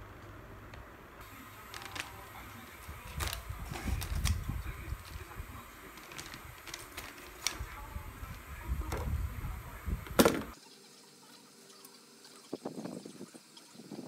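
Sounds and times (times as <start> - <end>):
plastic packaging crinkling: 1.2 - 9.0
loud knock: 10.2 - 10.6.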